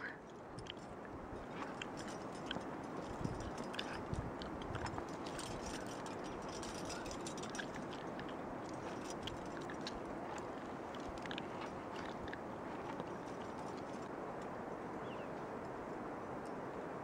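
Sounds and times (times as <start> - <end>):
climbing hardware clinking: 0.6 - 14.1.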